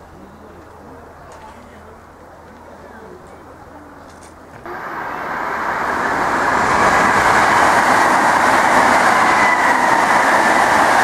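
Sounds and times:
train wheels on rails: 0:04.1 - 0:11.0.

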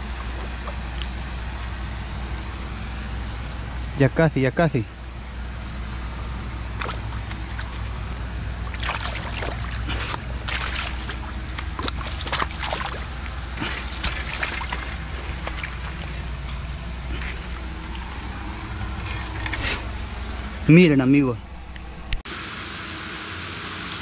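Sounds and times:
low rumble: 0:04.9 - 0:22.2
fish splashing in shallow water: 0:06.6 - 0:20.1.

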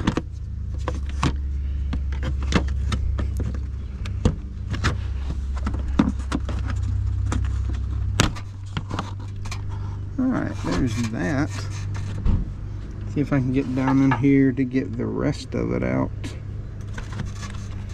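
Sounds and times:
steady low hum: 0:00.0 - 0:17.9.

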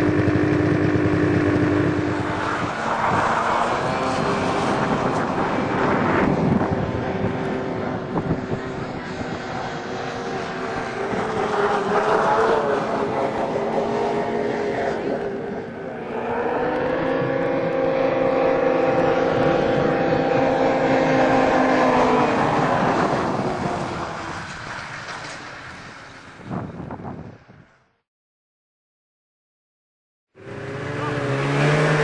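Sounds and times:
snowmobile engines whining: 0:00.0 - 0:27.2, 0:30.4 - 0:32.0.

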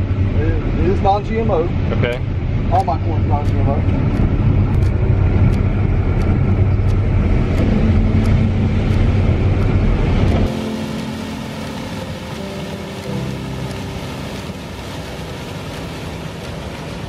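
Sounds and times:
combine harvester rumble: 0:00.0 - 0:17.0
faint ticking: 0:02.0 - 0:16.6
held steady tones: 0:02.2 - 0:15.8.

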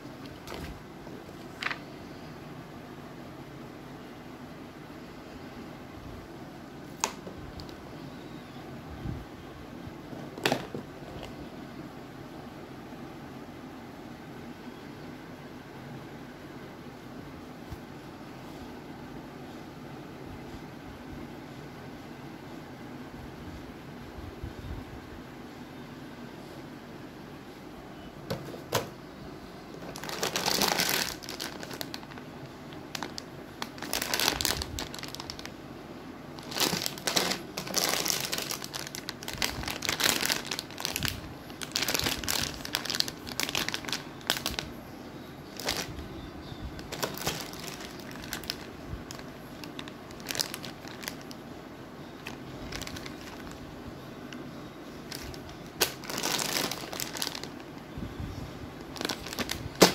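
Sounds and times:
plastic bags crinkling: 0:00.0 - 0:01.9, 0:06.8 - 0:07.8, 0:10.2 - 0:11.4, 0:29.7 - 0:35.6, 0:36.4 - 0:44.8, 0:45.4 - 0:46.0, 0:46.8 - 0:51.4, 0:52.2 - 0:53.7, 0:55.0 - 0:57.9, 0:58.8 - 0:59.9.

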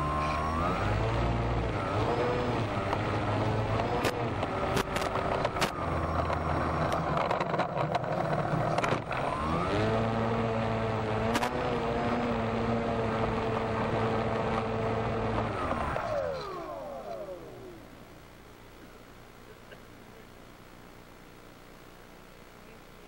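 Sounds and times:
rc airplane motor and propeller: 0:00.0 - 0:18.3.

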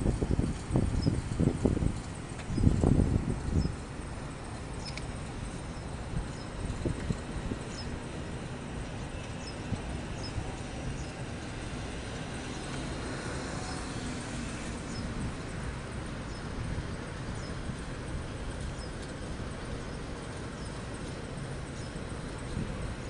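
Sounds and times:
wind on microphone: 0:00.0 - 0:05.0, 0:05.7 - 0:19.9, 0:21.8 - 0:23.0
distant traffic rumble: 0:00.0 - 0:23.0.

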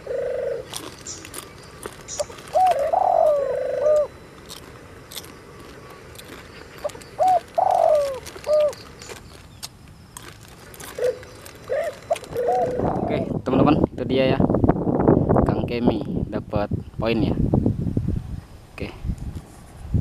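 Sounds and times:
dove cooing: 0:00.0 - 0:09.5, 0:10.4 - 0:13.4
light clicks and crinkles: 0:00.7 - 0:02.8, 0:04.4 - 0:12.4.

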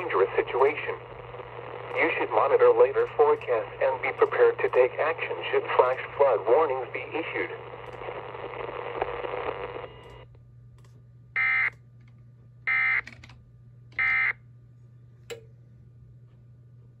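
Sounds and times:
radio message hiss: 0:00.0 - 0:09.9
click: 0:07.8 - 0:08.1, 0:10.0 - 0:11.0, 0:15.2 - 0:15.5.

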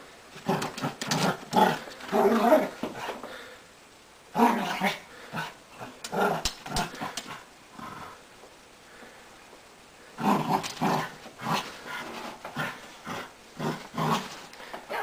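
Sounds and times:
dog play-growling: 0:00.3 - 0:03.3, 0:04.3 - 0:08.2, 0:10.2 - 0:15.0.

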